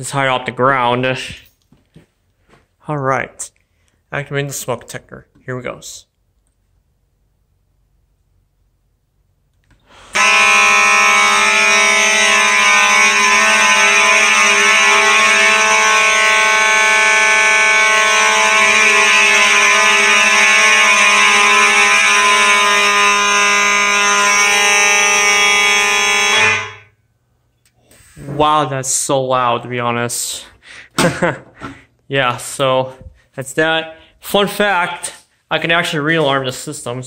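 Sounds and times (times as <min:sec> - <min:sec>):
fire alarm horns sounding: 0:09.9 - 0:27.2.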